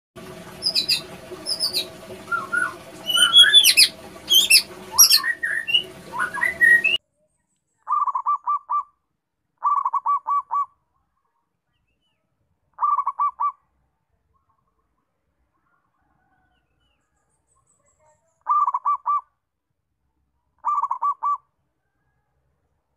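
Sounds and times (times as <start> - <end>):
steady hum: 0.2 - 7.0
whistled chirps and glides: 0.6 - 7.0.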